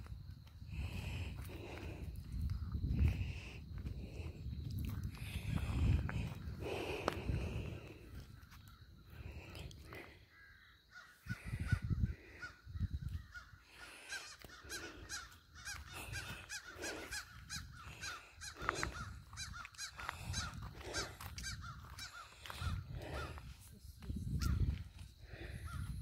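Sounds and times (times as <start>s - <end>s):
crows cawing: 9.9s - 23.4s.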